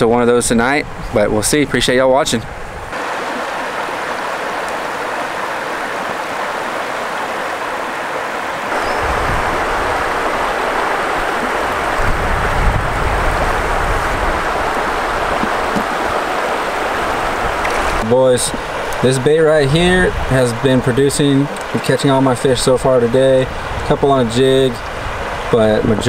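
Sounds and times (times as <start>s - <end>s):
river water rushing over rocks: 2.9s - 20.2s.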